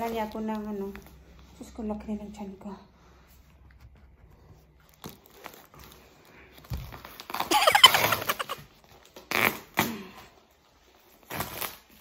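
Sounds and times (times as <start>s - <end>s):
squeaky tape ripping: 7.2s - 8.6s, 9.2s - 9.9s.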